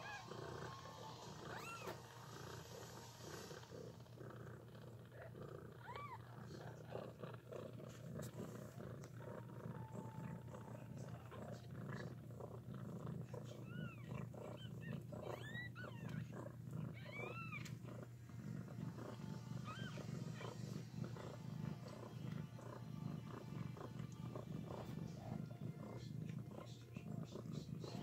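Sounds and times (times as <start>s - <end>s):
cat purring: 0.0s - 28.0s
kitten mewing: 1.5s - 2.0s.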